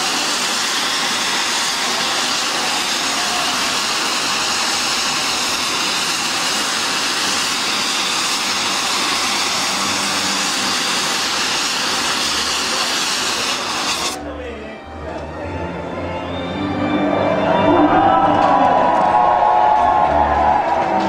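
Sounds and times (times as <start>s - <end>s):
fog jet hissing: 0.0s - 14.2s.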